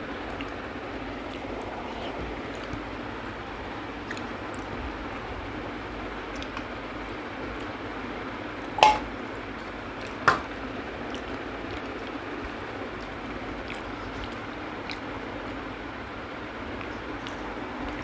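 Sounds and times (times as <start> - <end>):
ticks of eating by hand: 0.0 - 5.6, 6.2 - 18.0
steady background hiss: 0.0 - 18.0
steel bowls clinking: 8.8 - 9.1.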